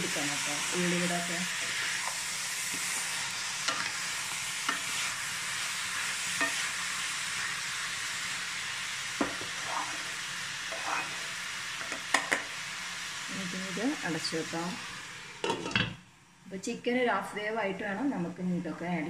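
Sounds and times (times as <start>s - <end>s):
food sizzling in a pan: 0.0s - 19.0s
spatula tapping and scraping pan: 3.6s - 3.9s, 4.6s - 5.0s, 6.4s - 6.7s, 9.2s - 9.5s, 11.8s - 12.5s.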